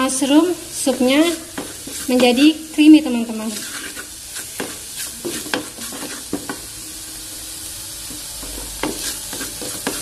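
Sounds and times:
frying sizzle: 0.0s - 10.0s
wooden spatula scraping metal pot: 0.8s - 6.6s, 8.5s - 10.0s.

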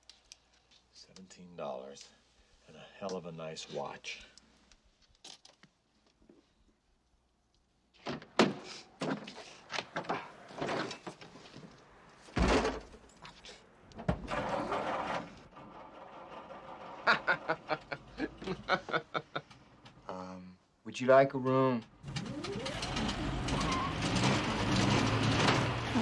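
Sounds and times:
heavy thud: 12.4s - 13.0s
scraping noise: 14.3s - 18.2s.

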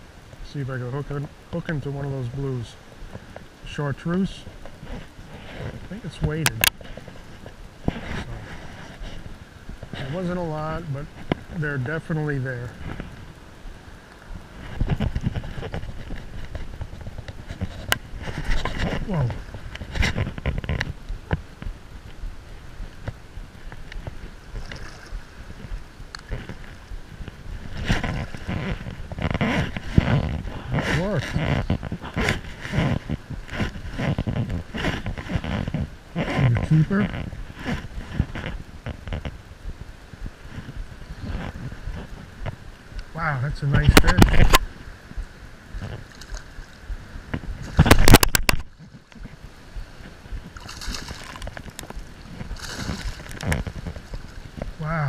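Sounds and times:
wind buffeting microphone: 4.4s - 55.0s
water sloshing and splashing: 22.4s - 33.9s, 45.8s - 46.8s, 47.4s - 54.9s
fish splashing in water: 46.0s - 46.8s, 50.4s - 54.6s.

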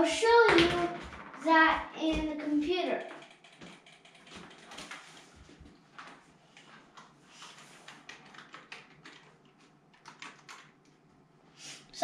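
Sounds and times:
computer keyboard typing: 3.0s - 5.2s, 7.0s - 11.0s.

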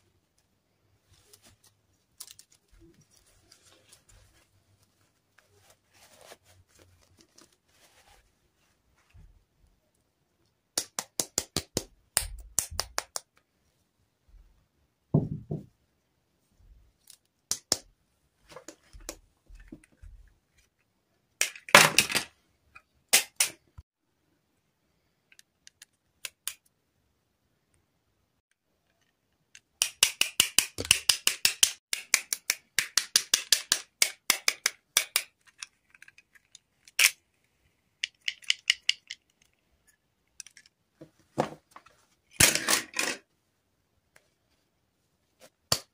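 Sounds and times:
rustling: 0.0s - 9.4s
plastic clicks: 38.0s - 39.6s.

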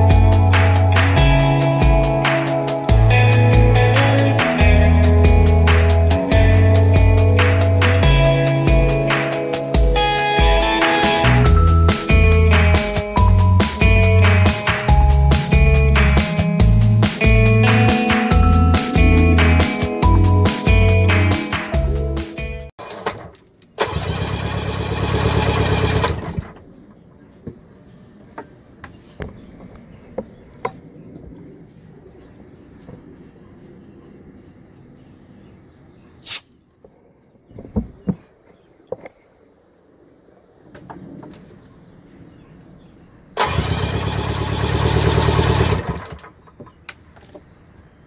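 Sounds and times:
outboard engine starter cranking: 22.8s - 26.6s, 43.4s - 46.3s.

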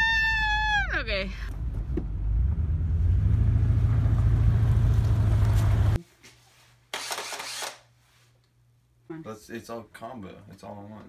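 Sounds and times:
car engine rumbling: 1.1s - 6.0s.

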